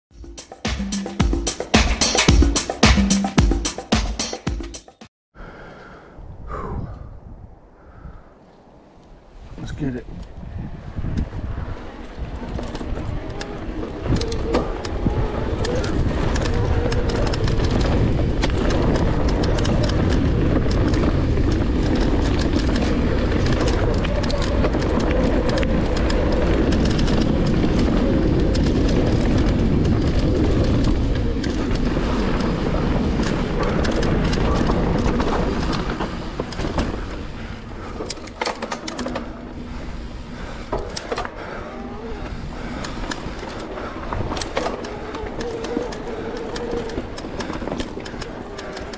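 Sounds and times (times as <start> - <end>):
wind buffeting microphone: 5.5 - 48.9
bike tyres rolling over sandy dirt: 8.8 - 48.9
bike clicks and rattles: 10.1 - 48.9.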